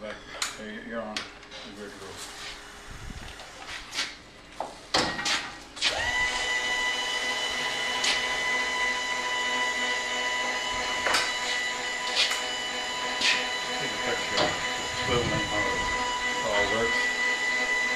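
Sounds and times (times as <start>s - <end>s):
small electric motor whining: 5.8s - 17.9s.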